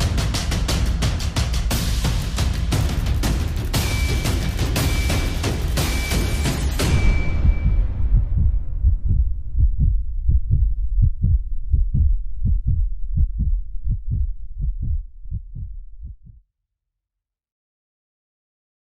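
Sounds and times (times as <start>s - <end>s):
heartbeat thumps: 0.0s - 16.4s
ringing boom: 4.9s - 10.4s.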